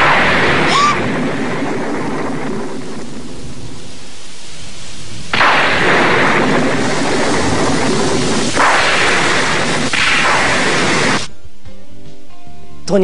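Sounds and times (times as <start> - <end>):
loud thunder: 0.0 - 4.2, 5.0 - 11.3
rain rushing: 0.0 - 11.3.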